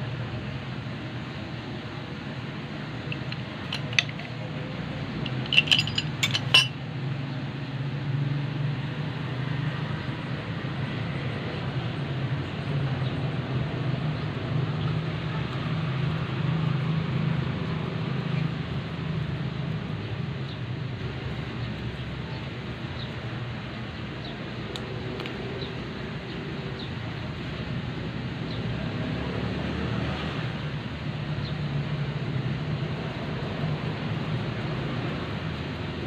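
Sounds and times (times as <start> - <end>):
low mechanical hum: 0.0 - 7.8.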